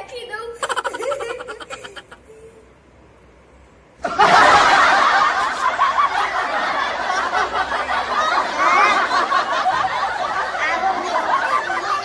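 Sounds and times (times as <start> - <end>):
loud laughter: 0.6 - 2.4, 4.0 - 12.0.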